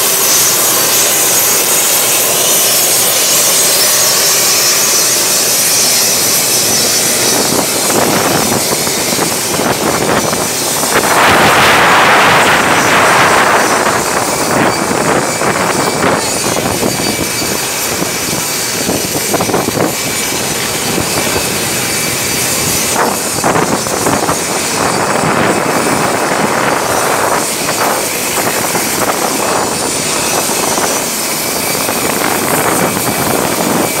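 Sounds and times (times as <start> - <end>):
aircraft engines roaring: 0.0 - 34.0
faint high whine: 0.0 - 34.0
wind on microphone: 0.0 - 34.0.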